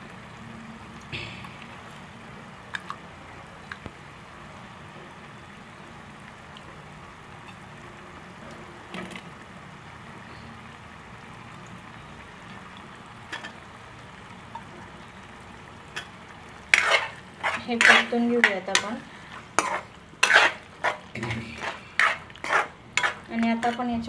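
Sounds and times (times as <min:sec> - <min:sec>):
gravy bubbling in a pan: 0:00.0 - 0:24.0
potato pieces clattering into pan: 0:15.9 - 0:24.0.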